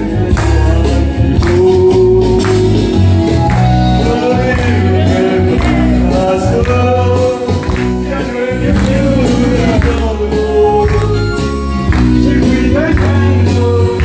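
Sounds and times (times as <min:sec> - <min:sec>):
man singing: 0:00.0 - 0:03.0, 0:03.6 - 0:14.0
karaoke backing track: 0:00.0 - 0:14.0.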